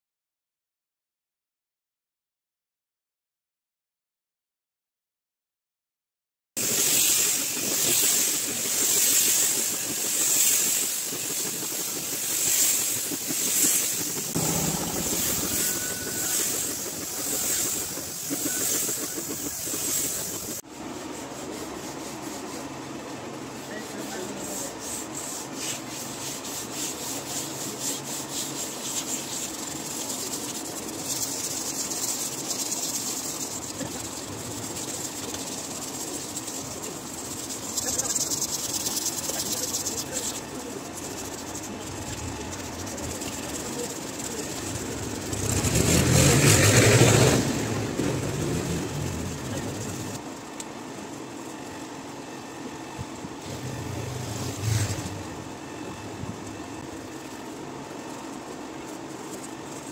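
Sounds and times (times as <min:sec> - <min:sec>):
loud hiss: 0:06.6 - 0:20.6
deep rumble: 0:14.1 - 0:18.3, 0:42.0 - 0:50.2, 0:53.4 - 0:56.8
pads rubbing wooden door: 0:53.4 - 0:55.7.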